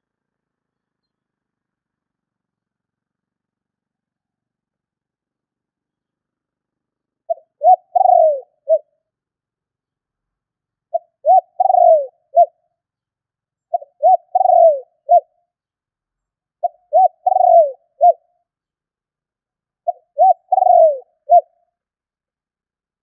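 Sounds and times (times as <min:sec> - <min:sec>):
dove cooing: 0:07.3 - 0:08.9, 0:10.9 - 0:12.6, 0:13.7 - 0:15.3, 0:16.6 - 0:18.3, 0:19.8 - 0:21.6.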